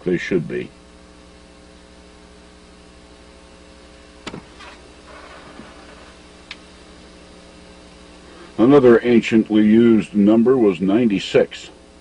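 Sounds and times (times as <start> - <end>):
electrical hum and hiss: 0.0 - 12.0
faint click: 6.4 - 6.7.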